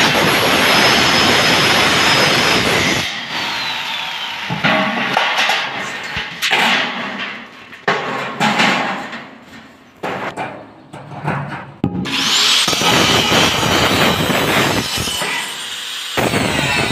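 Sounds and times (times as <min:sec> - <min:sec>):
angle grinder whine: 0:00.0 - 0:04.6, 0:12.1 - 0:16.9.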